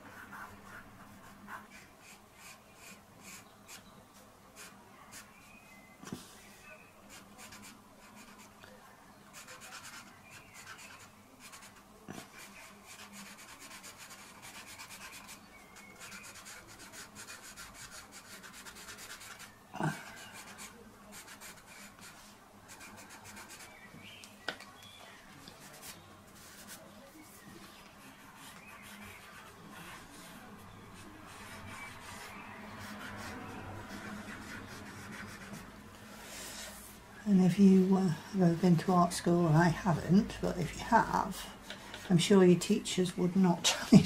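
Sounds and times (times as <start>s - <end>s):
pencil scratching on paper: 0.0s - 3.8s, 7.1s - 8.6s, 9.3s - 23.7s, 27.8s - 35.7s.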